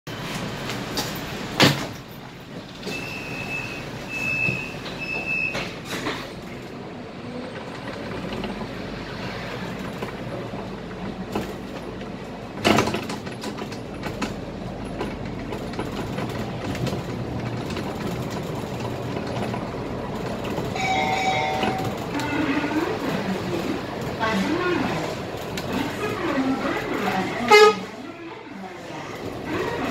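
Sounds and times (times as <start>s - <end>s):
bus engine and road rumble: 0.1s - 29.9s
body rattles and knocks: 11.2s - 20.8s.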